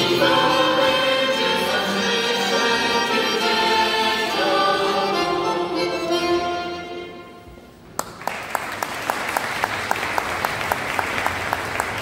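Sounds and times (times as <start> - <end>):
accordion and fiddle chord: 0.0 - 7.4
audience clapping in rhythm: 8.0 - 12.0.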